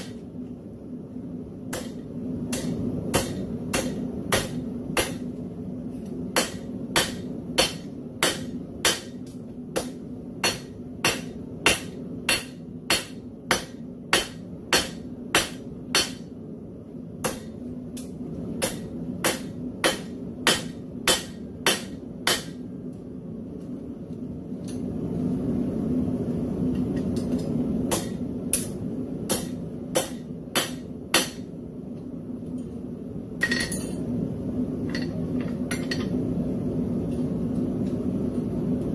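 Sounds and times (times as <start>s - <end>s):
hammer striking metal on anvil: 1.7s - 5.3s, 6.4s - 16.3s, 17.2s - 22.6s, 27.2s - 31.5s, 33.4s - 34.0s.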